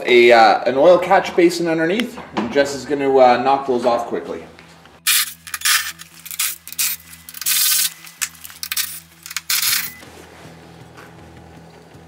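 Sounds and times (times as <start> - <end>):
cordless power driver spinning bolts: 5.1 - 10.0.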